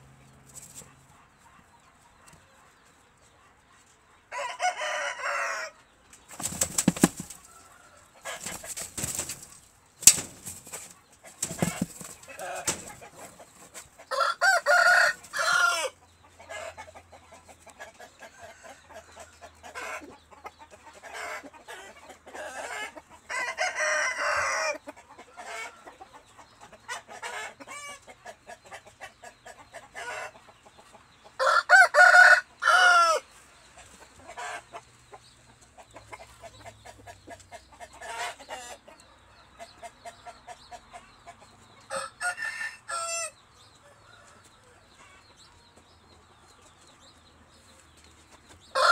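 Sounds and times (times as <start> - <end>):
chickens clucking: 0.0 - 48.9
loud pitched chicken calls: 31.4 - 33.3.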